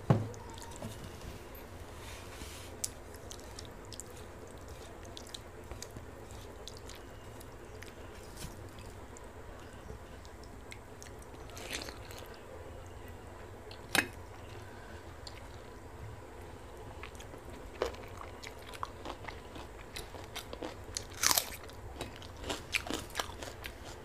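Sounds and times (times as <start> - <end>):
person chewing food: 2.8 - 12.4, 17.0 - 24.0
food crunches: 17.1 - 24.0.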